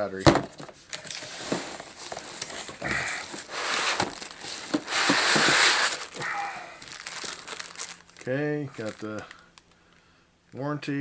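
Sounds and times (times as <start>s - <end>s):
paper and plastic wrap rustling: 0.5s - 9.5s
cardboard packaging knocks: 3.4s - 6.0s.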